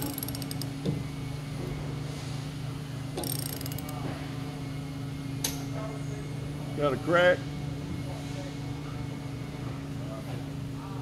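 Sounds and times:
ratchet handle clicking: 0.0s - 0.7s, 3.2s - 4.0s.

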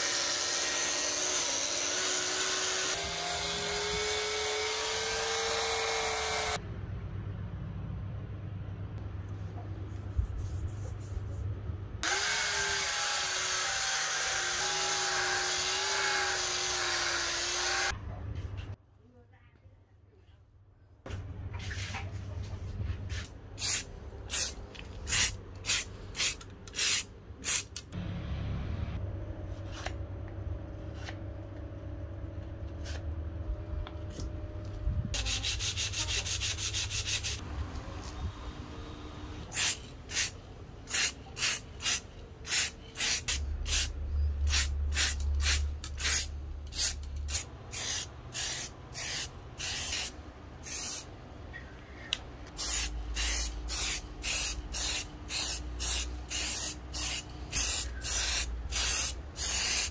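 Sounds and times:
sandpaper rubbing: 35.2s - 37.4s, 52.8s - 59.9s.

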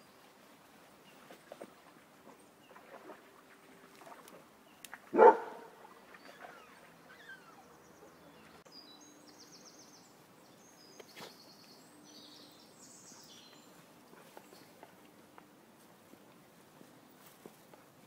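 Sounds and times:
dog barking: 5.1s - 5.8s.

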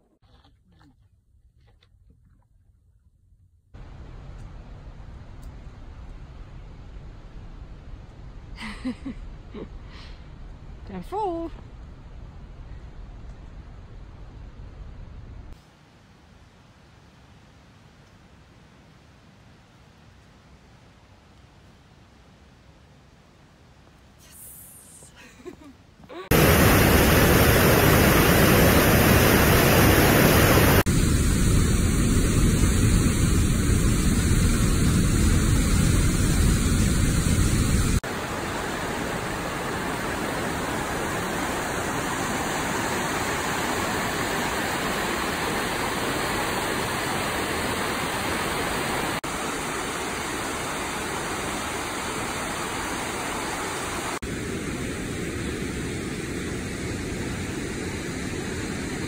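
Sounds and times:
waterfall: 26.2s - 59.0s
rushing river water: 26.3s - 30.9s, 37.9s - 54.2s.

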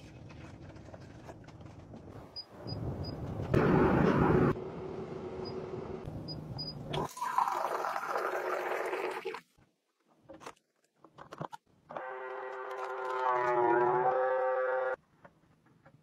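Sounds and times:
water pouring into a glass: 6.9s - 9.4s.

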